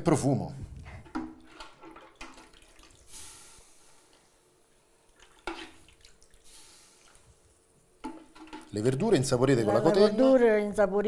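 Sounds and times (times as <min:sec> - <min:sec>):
soup splashing and dripping: 0:01.1 - 0:08.8.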